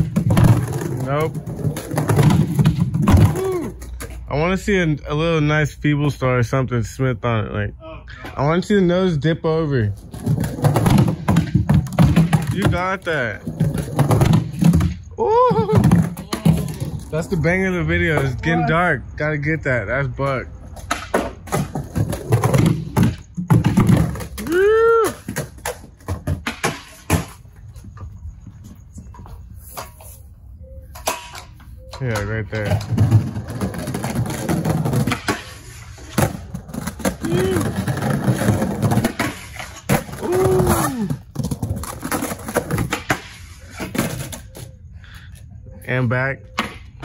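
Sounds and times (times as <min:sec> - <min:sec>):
skateboard clacks and knocks: 0:00.0 - 0:04.3, 0:10.0 - 0:17.4, 0:20.6 - 0:28.1, 0:30.9 - 0:44.8
skateboard wheels rolling on wood: 0:00.0 - 0:04.3, 0:09.8 - 0:18.8, 0:20.3 - 0:30.2, 0:32.2 - 0:44.7.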